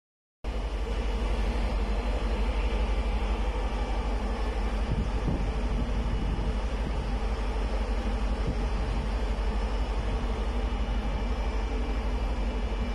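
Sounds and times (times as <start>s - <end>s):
strong wind buffeting microphone: 3.0s - 12.9s.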